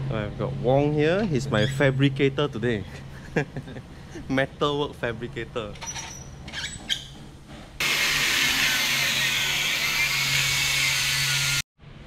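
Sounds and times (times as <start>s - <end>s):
angle grinder cutting metal: 7.8s - 11.6s.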